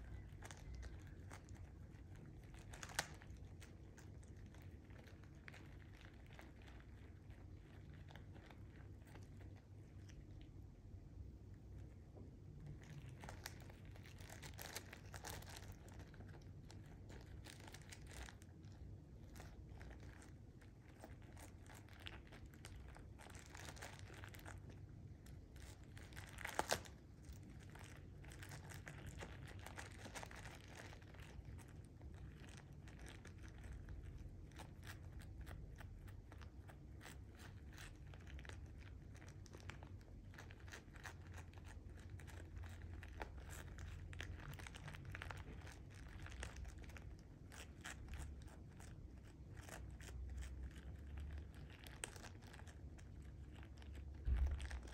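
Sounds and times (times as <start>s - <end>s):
plastic bag crinkling: 0.0s - 10.4s, 12.2s - 54.9s
cat crunching treats: 0.0s - 54.9s.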